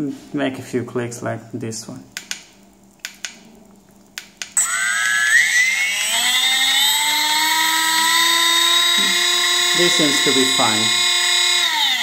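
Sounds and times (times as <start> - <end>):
electric motor whine: 4.6 - 12.0.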